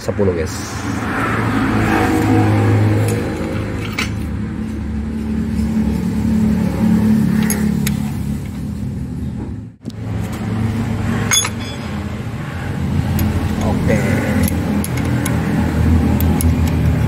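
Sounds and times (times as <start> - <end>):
wrench clicking on metal: 13.0 - 17.0.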